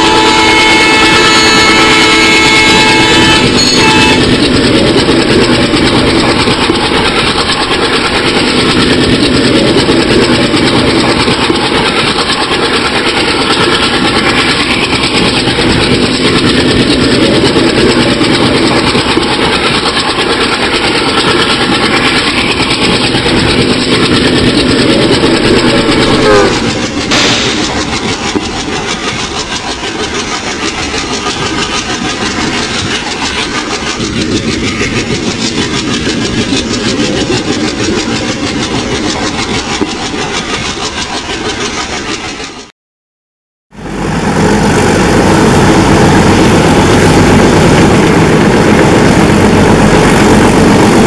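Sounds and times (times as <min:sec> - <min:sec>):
locomotive horn chord: 0:00.0 - 0:04.2, 0:26.2 - 0:26.7
diesel locomotive engine and rail noise: 0:00.0 - 0:42.7, 0:43.7 - 0:51.0.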